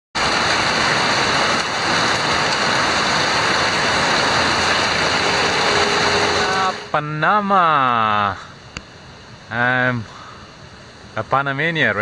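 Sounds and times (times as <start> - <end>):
runoff pouring off roof and splashing: 0.2 - 6.2
heavy rain: 0.2 - 12.0.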